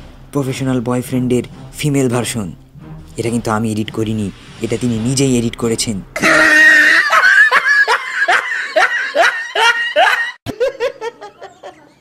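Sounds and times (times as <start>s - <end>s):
man laughing high-pitched: 6.2s - 11.5s.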